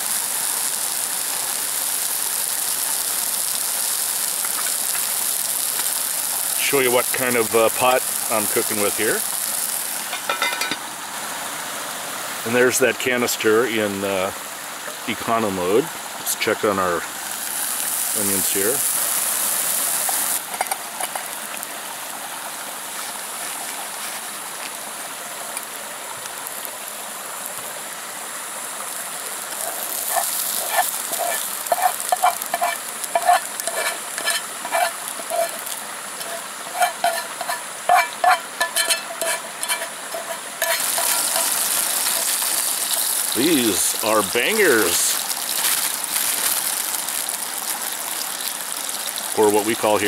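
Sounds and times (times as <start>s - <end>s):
onions sizzling in a pot: 0.0s - 50.0s
spoon scraping and tapping pot: 10.1s - 10.8s, 30.1s - 42.3s.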